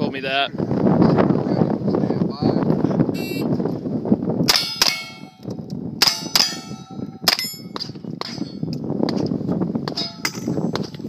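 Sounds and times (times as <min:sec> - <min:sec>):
steel plate clanging: 0:04.5 - 0:05.4, 0:06.0 - 0:08.7, 0:09.9 - 0:11.0.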